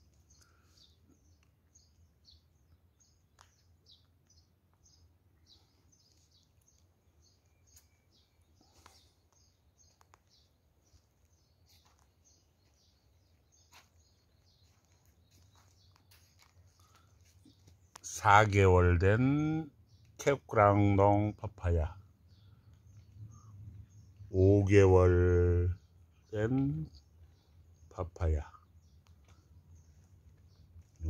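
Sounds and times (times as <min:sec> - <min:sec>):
small bird chirping: 0:00.0 - 0:31.0
soft clicks: 0:09.2 - 0:10.4.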